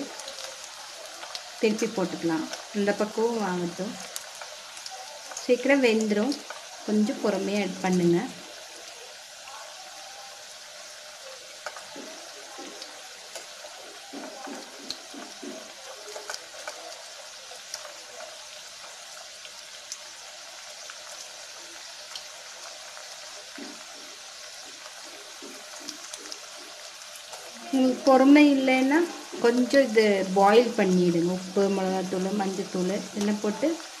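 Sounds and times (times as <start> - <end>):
oil sizzling and crackling: 0.0 - 34.0
spoon stirring in oil: 3.7 - 7.9, 11.4 - 19.9.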